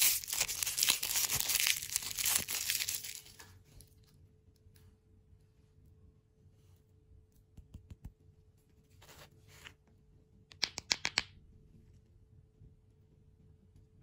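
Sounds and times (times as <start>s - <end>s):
lollipops clicking together: 10.5s - 11.3s.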